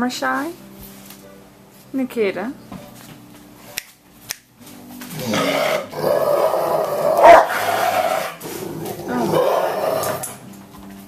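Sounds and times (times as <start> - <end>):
dog whining: 5.1 - 10.4.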